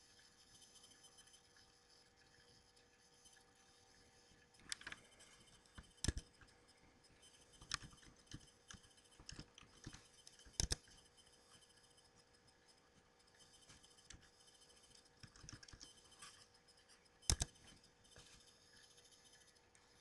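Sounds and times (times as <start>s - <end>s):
computer keyboard keystrokes: 5.8s - 6.4s, 7.6s - 10.9s, 15.2s - 15.9s, 17.2s - 17.6s.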